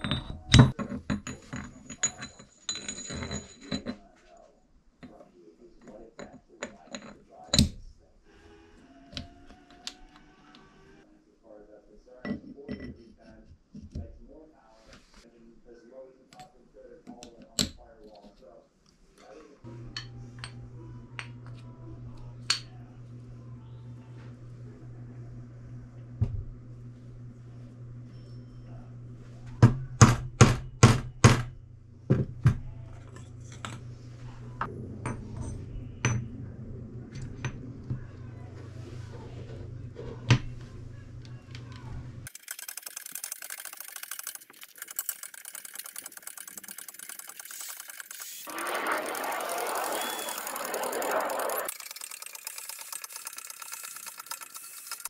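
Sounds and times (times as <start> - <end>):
metal clink: 0.0 - 4.0
steel gears clinking: 42.3 - 55.0
low hum: 43.7 - 55.0.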